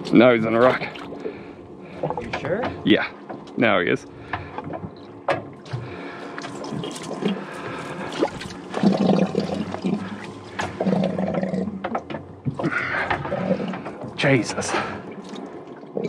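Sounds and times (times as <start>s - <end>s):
water running and gurgling: 4.7s - 16.0s.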